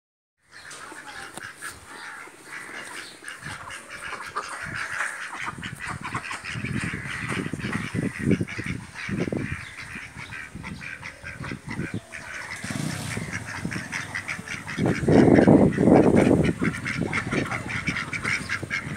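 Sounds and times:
ducks quacking: 0.5 - 18.9
low thuds and rumble: 12.7 - 18.9.

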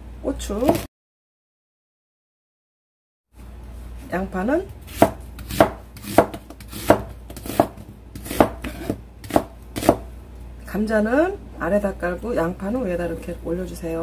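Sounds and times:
knife chopping on cutting board: 0.6 - 0.9, 4.9 - 10.1.

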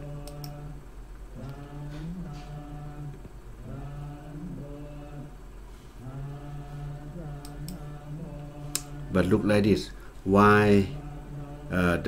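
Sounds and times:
men chanting: 0.0 - 0.8, 1.4 - 5.4, 6.0 - 12.0
low steady hum: 0.0 - 12.0
sharp clicks: 0.2 - 0.6.

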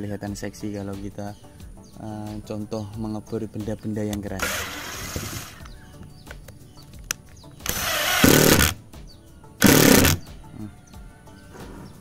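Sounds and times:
impact driver rattling into wood: 4.4 - 5.6, 7.6 - 8.8, 9.6 - 10.2.

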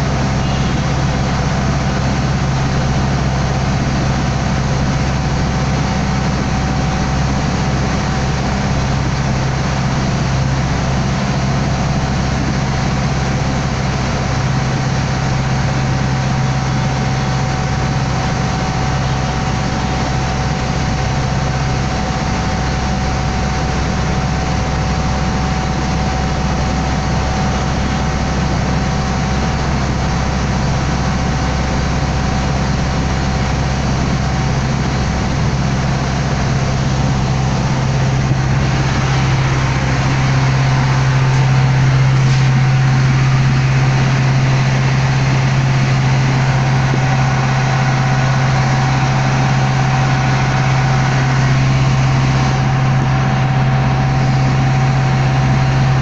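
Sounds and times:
boat engine drone: 0.0 - 56.0
thin steady whine: 0.0 - 56.0.

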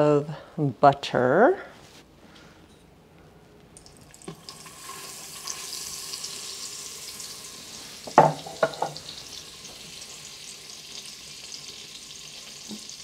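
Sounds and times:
butter and oil sizzling in a pot: 3.8 - 13.0.

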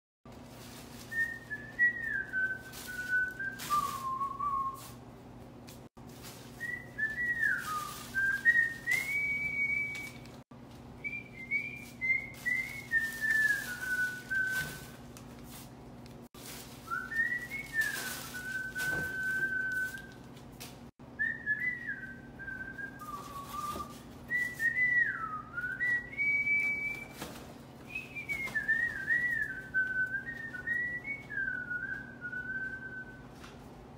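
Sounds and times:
plastic bag rustling: 0.3 - 5.0, 6.0 - 20.9, 22.7 - 32.7
person whistling a tune: 1.1 - 5.0, 6.5 - 10.4, 11.0 - 15.0, 16.8 - 20.2, 21.2 - 33.3.

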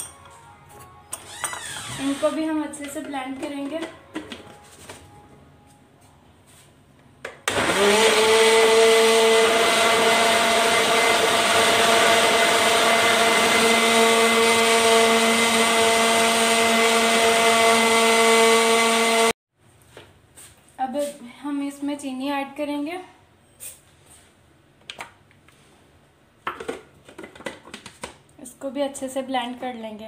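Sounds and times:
blender motor whining: 7.5 - 19.4.

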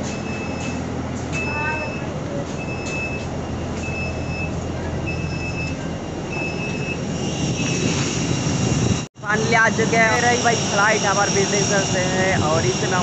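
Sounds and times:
vehicle warning beeps: 0.0 - 8.7
bus engine rumble: 0.0 - 13.0
rushing noise: 1.8 - 13.0.

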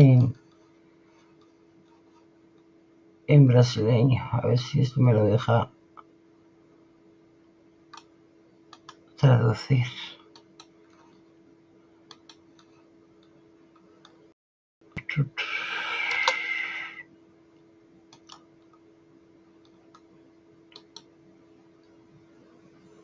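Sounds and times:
faint steady hum: 0.0 - 23.0
computer mouse clicks: 7.9 - 8.1, 8.7 - 9.0, 10.3 - 11.2, 12.1 - 14.2, 16.0 - 16.5, 18.1 - 18.8, 20.7 - 21.1
hissing rush: 15.4 - 17.0.

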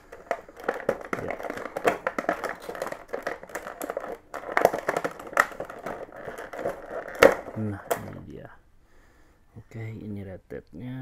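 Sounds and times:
plastic blister tray crackling: 0.0 - 8.4.

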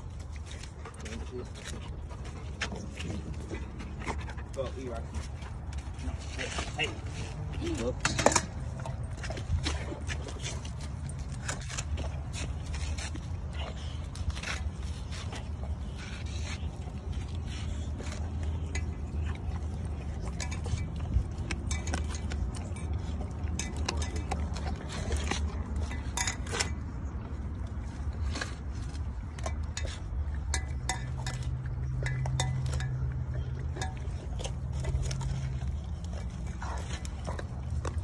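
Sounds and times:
dog chewing and crunching: 0.0 - 38.0
clinks against steel bowl: 30.5 - 34.0.

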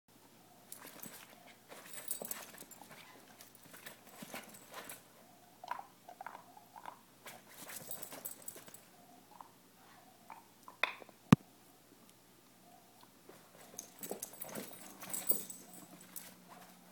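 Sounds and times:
dogs scuffling and scrabbling: 0.7 - 5.2, 6.8 - 8.9, 13.3 - 16.9.

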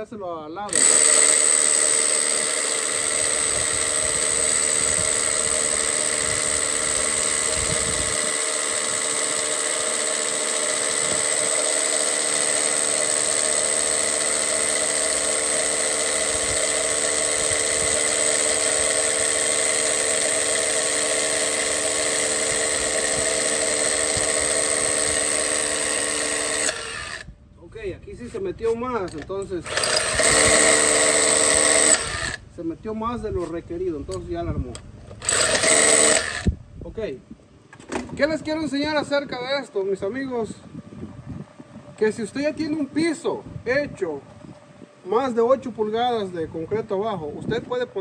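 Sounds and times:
cordless drill boring into concrete: 0.7 - 27.3, 29.1 - 32.4, 35.2 - 36.6.

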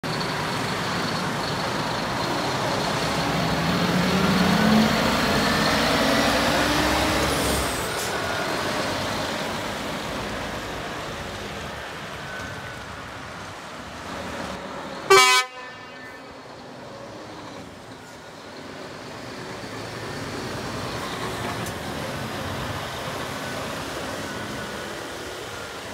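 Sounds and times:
diesel truck engine accelerating: 0.0 - 15.1, 16.3 - 25.9
truck horn toot: 15.1 - 16.3.

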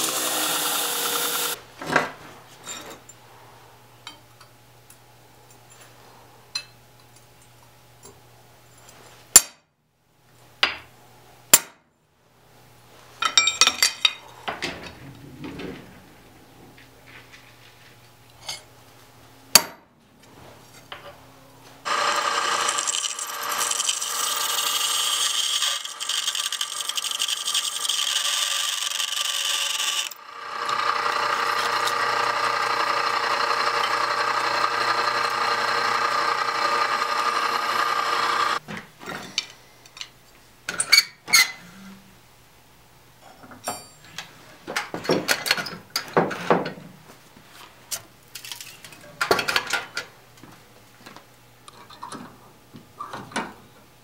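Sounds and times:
drill press cutting steel: 0.0 - 1.6, 21.9 - 38.6.

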